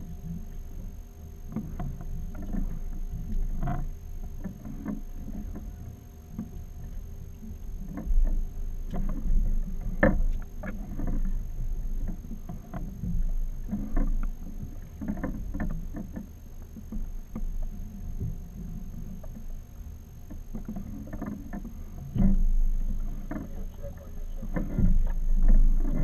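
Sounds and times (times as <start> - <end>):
water against boat hull: 0.0 - 26.0
wind: 0.0 - 26.0
knocks and clicks from fishing gear: 7.9 - 11.4, 20.3 - 23.5.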